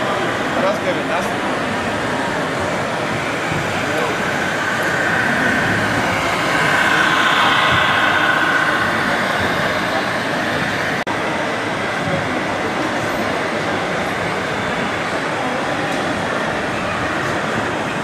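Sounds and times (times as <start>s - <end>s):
crowd hubbub: 0.0s - 18.0s.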